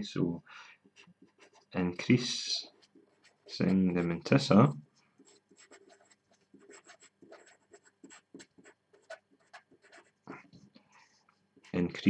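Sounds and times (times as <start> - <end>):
marker pen scratching: 0.8 - 4.4, 5.2 - 12.0.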